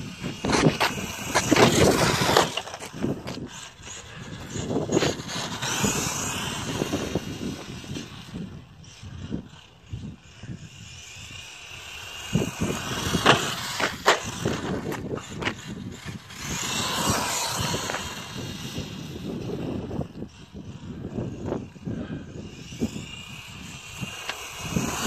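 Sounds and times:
electric motor whining: 0.0 - 25.0
tyre noise on asphalt: 0.0 - 25.0.

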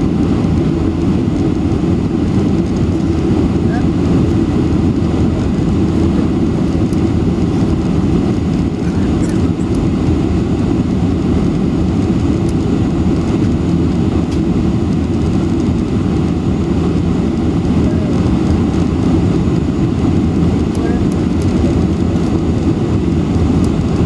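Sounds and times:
airplane cabin roar: 0.0 - 24.0.

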